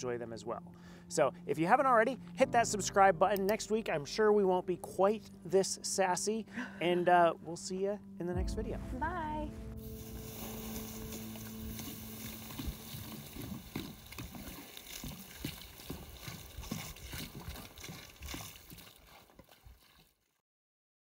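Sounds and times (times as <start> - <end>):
fire hissing and crackling: 9.8 - 16.2
water splashing on fire: 9.8 - 20.2.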